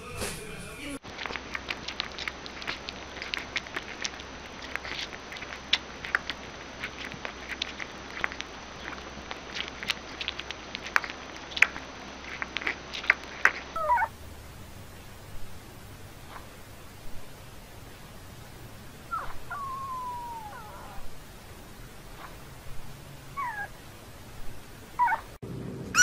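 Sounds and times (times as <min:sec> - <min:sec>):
puppy suckling wet clicks: 0:01.0 - 0:14.1
puppy whining: 0:01.2 - 0:14.2, 0:19.0 - 0:21.4, 0:22.1 - 0:23.8, 0:24.4 - 0:26.0.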